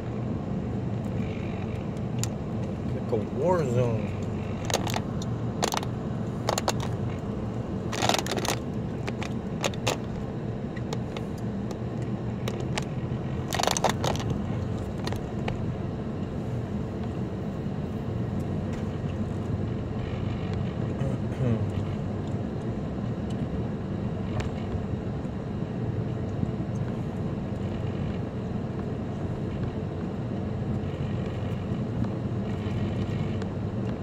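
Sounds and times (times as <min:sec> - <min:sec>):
car engine and tyre rumble: 0:00.0 - 0:34.0
light clicks and rattles: 0:04.1 - 0:07.2, 0:07.9 - 0:15.6.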